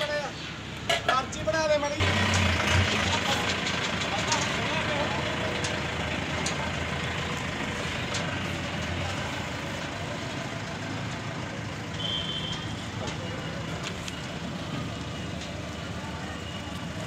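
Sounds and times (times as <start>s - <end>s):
tractor engine running: 2.0s - 17.0s.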